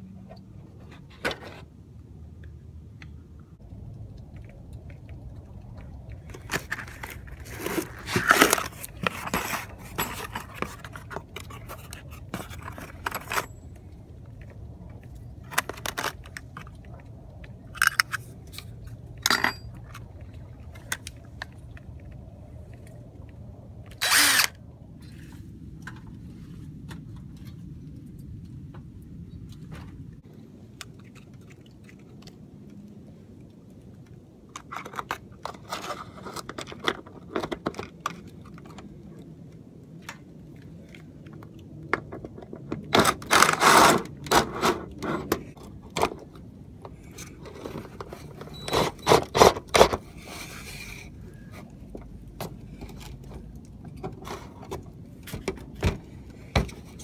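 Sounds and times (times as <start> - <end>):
steady low rumble: 0.0 - 34.5
metal scrapes clinks and knocks: 6.4 - 13.7, 17.8 - 20.0.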